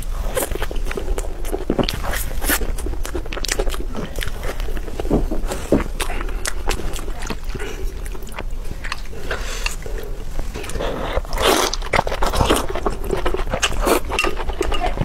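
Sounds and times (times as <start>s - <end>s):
wet chewing and biting: 0.0s - 15.0s
slurping broth: 3.8s - 15.0s.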